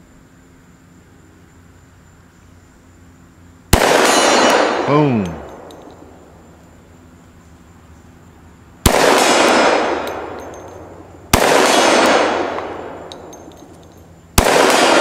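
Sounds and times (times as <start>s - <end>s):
pistol shots: 3.7s - 6.0s, 8.8s - 13.6s, 14.3s - 15.0s
long rolling echo: 8.9s - 15.0s.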